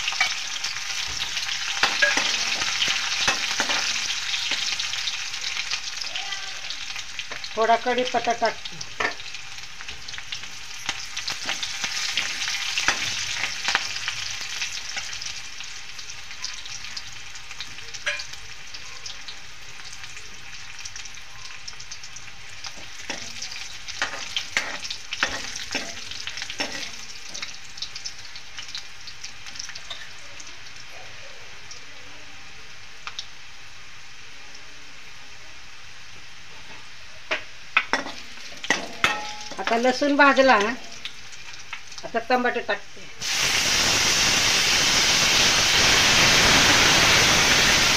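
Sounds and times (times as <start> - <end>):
garlic sizzling in hot oil: 0.0 - 47.9
metal spoon knocking on pan: 37.3 - 39.8.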